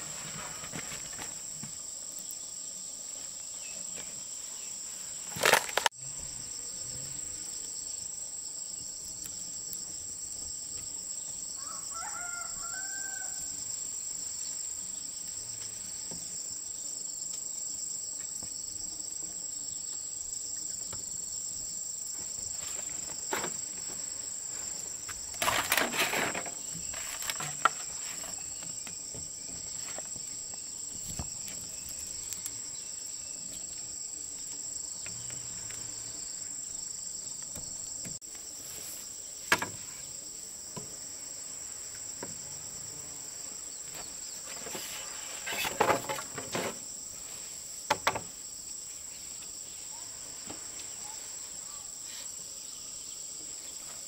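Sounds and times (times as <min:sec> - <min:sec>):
insects droning: 0:00.0 - 0:54.0
rooster crowing: 0:11.6 - 0:13.6.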